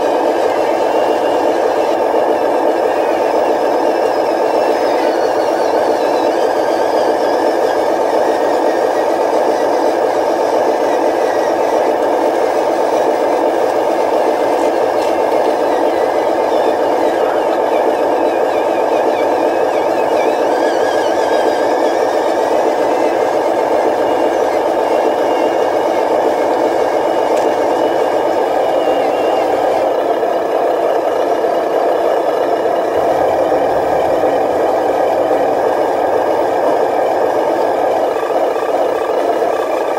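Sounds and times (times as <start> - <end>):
simulated truck engine from small speaker: 0.0 - 39.9.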